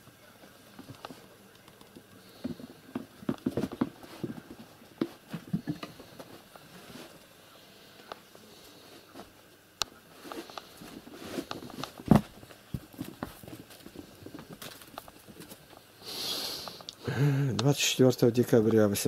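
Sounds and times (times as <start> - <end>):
kittens' paws pattering on floor: 10.2 - 15.9.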